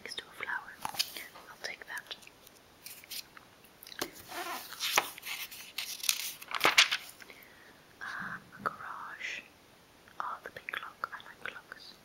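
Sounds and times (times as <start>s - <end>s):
catalogue pages rustling: 0.8s - 1.4s, 2.8s - 3.3s, 4.0s - 7.2s.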